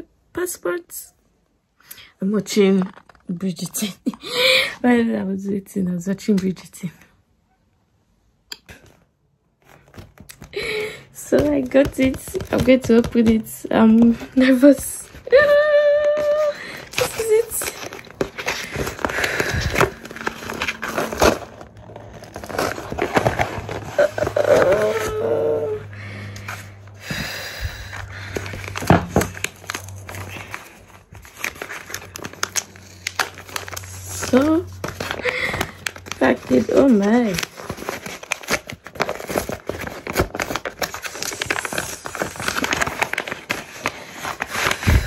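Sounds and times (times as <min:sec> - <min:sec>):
envelope tearing and crinkling: 0:12.0 - 0:25.8, 0:27.8 - 0:45.0.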